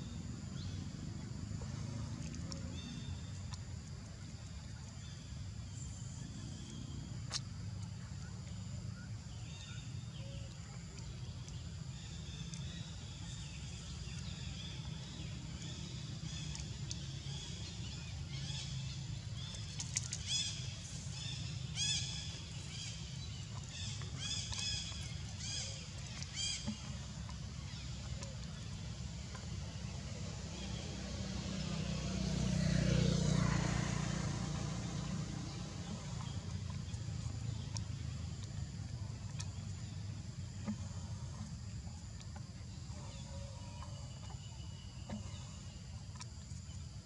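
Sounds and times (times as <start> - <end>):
outdoor background noise: 0.0 - 47.0.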